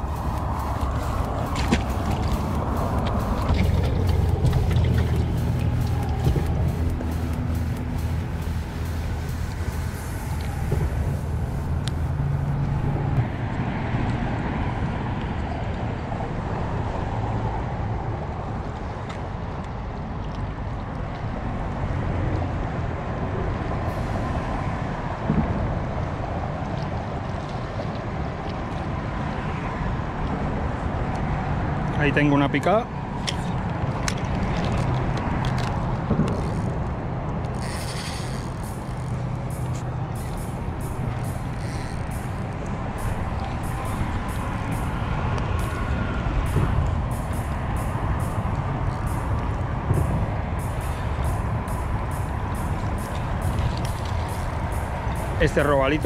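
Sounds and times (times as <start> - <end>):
fishing reel clicking: 0.0 - 10.6, 34.1 - 36.8, 37.4 - 46.5, 47.1 - 49.6, 50.6 - 56.0
steady low hum: 0.0 - 13.5, 36.4 - 56.0
low engine drone: 0.0 - 56.0
wind and water hiss: 0.0 - 56.0.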